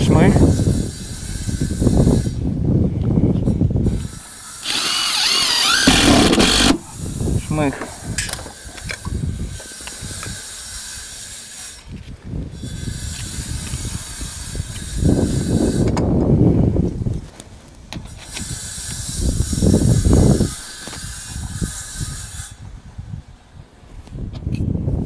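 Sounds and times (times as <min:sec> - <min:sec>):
cordless drill whining: 0:04.5 - 0:07.0.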